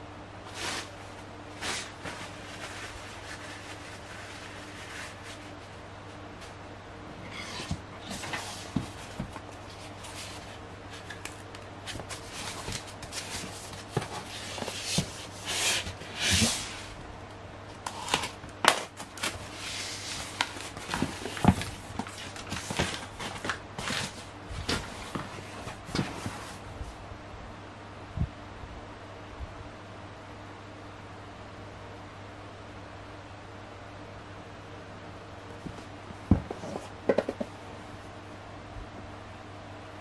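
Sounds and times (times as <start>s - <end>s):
cardboard and tape rustling: 0.5s - 6.6s, 7.2s - 17.1s, 17.7s - 26.7s.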